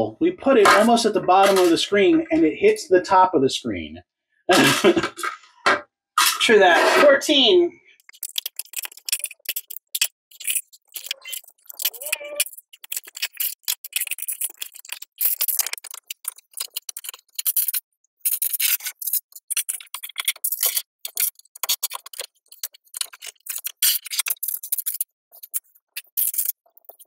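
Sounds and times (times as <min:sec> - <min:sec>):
plastic bricks clicking and rattling: 0:08.0 - 0:27.0.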